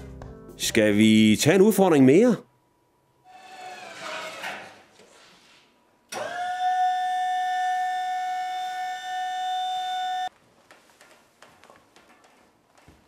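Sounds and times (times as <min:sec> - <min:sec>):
loud siren-like wail: 0:06.2 - 0:10.3.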